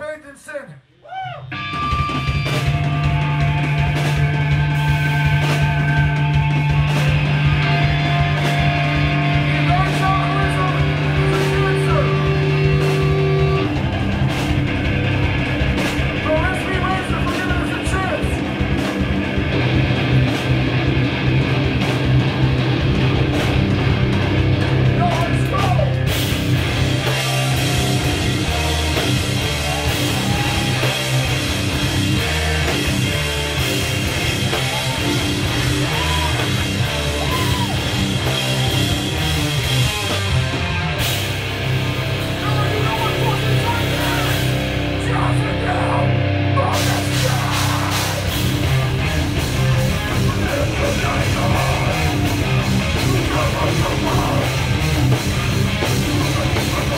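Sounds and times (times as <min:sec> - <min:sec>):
drums and cymbals: 0:01.1 - 0:45.1, 0:46.7 - 0:56.9
distorted electric guitars and bass: 0:01.1 - 0:56.9
shouted vocals: 0:27.0 - 0:32.7, 0:34.2 - 0:39.2, 0:42.5 - 0:48.4.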